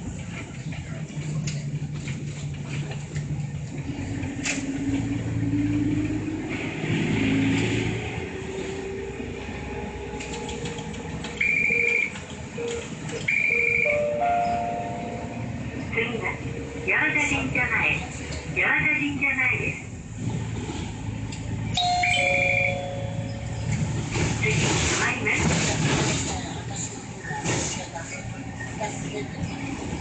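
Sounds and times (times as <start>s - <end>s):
bus engine revving: 0.0s - 13.8s, 19.8s - 30.0s
short electronic beeps: 21.8s - 23.8s.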